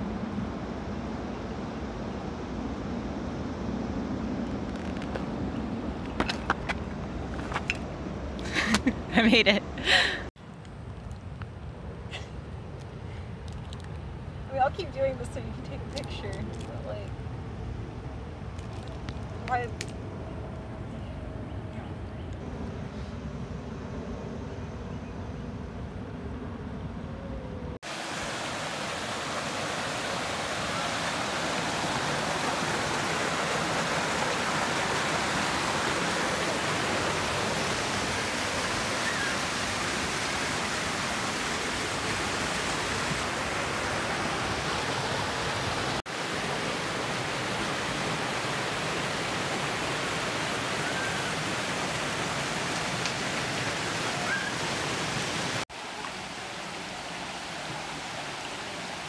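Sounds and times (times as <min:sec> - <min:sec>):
water rushing over rocks: 0:27.8 - 0:59.0.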